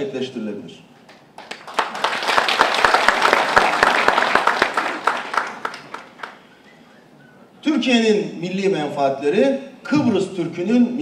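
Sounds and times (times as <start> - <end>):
audience applauding: 1.1 - 6.5.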